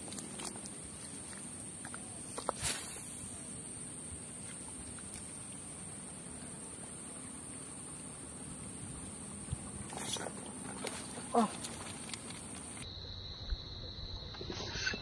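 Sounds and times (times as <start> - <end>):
faint steady hiss: 0.0 - 14.1.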